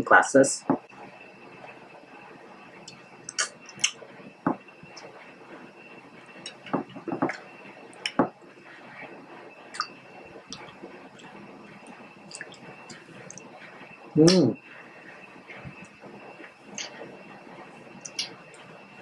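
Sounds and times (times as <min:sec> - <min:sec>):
wet squelches: 0:09.7 - 0:13.6.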